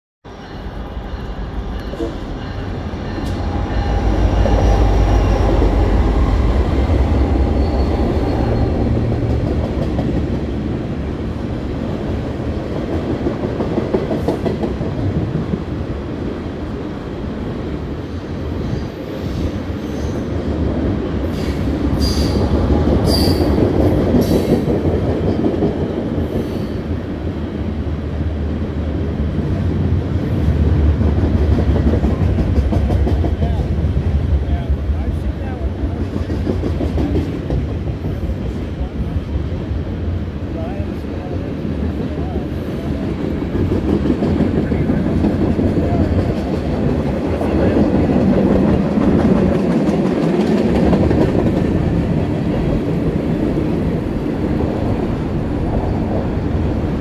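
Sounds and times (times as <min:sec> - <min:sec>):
diesel locomotive rumble: 0:00.6 - 0:19.9
high-pitched wheel squeals: 0:07.5 - 0:08.9.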